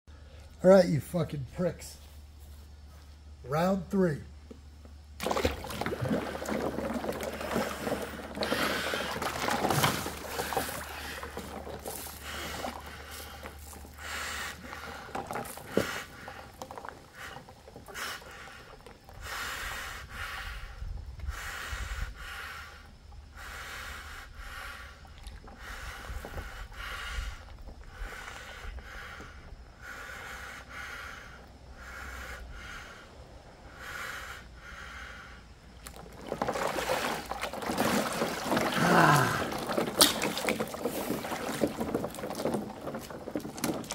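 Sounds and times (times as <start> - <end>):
water and ice sloshing: 5.2 - 19.2, 35.8 - 43.9
breathing through a snorkel: 6.2 - 35.6.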